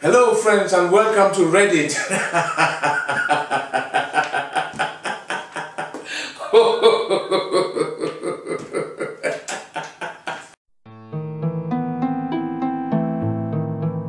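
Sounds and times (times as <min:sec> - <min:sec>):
man laughing: 0:01.9 - 0:10.6.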